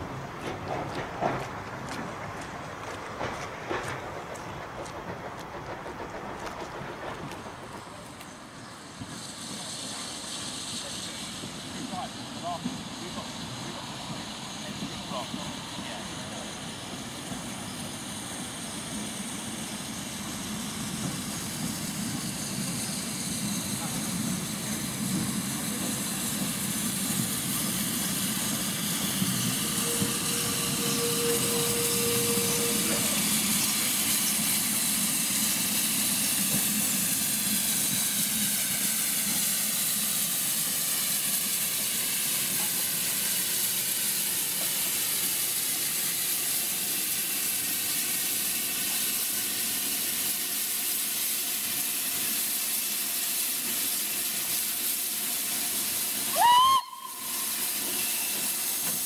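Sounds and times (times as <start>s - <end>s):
steam hissing: 0.0s - 59.0s
steam locomotive rumbling: 0.0s - 59.0s
steady squeal: 27.7s - 37.0s.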